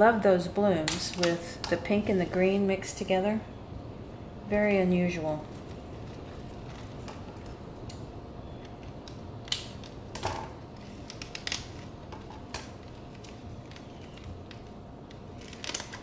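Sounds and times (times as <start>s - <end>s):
plastic sleeve rustling: 5.4s - 7.9s, 8.7s - 16.0s
plastic pot clicks and crinkles: 10.8s - 16.0s.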